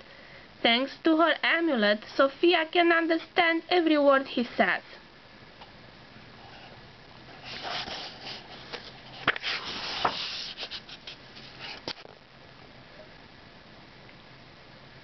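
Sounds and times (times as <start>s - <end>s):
book pages turning: 7.3s - 12.1s
paper clicks: 7.6s - 12.0s.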